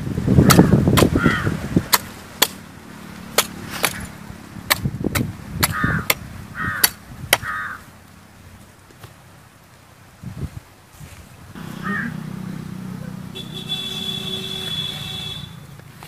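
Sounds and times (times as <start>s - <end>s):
blade chopping coconut husk: 0.4s - 1.2s, 1.8s - 7.5s
bird calling: 0.4s - 1.6s, 5.7s - 7.9s, 11.6s - 15.6s.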